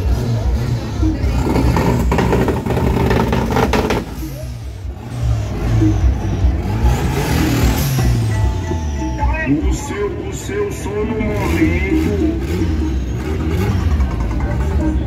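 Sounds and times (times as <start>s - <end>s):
car engines revving: 0.0s - 15.0s.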